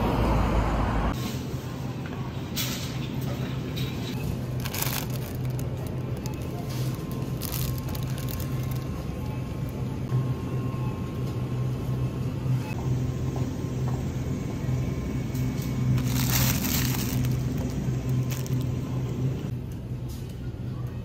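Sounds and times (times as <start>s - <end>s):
refrigerator hum: 1.8s - 21.0s
plastic wrapping crinkling: 4.2s - 9.1s, 16.0s - 18.9s.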